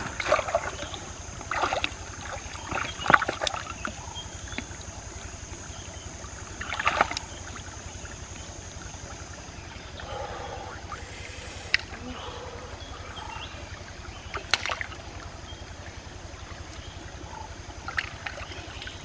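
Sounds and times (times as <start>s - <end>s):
running water: 0.0s - 19.0s.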